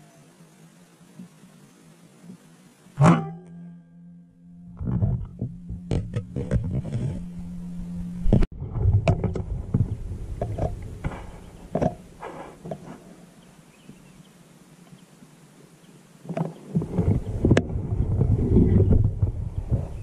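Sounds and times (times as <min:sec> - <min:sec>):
camera handling rumble: 0:04.8 - 0:07.3
wind on microphone: 0:04.8 - 0:13.0, 0:16.3 - 0:20.0.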